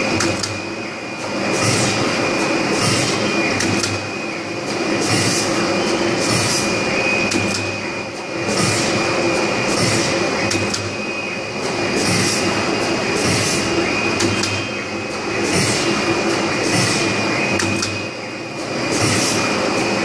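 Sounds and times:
machine drone with high whine: 0.0s - 20.0s
sharp machine clicks: 2.8s - 4.0s, 5.1s - 7.8s, 9.7s - 10.9s, 13.2s - 14.6s, 15.4s - 18.0s.

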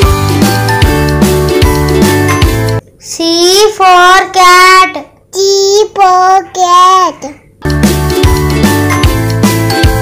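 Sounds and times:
instrumental music with drum beat: 0.0s - 2.8s, 7.6s - 10.0s.

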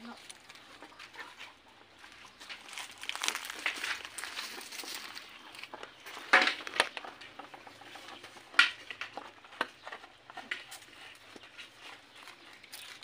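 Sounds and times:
dogs eating from plastic bowl: 3.5s - 13.0s.

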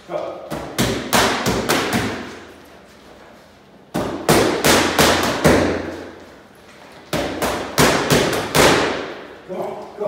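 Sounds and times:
boxing gloves hitting mitts: 0.5s - 2.4s, 3.9s - 6.2s, 7.0s - 9.2s.

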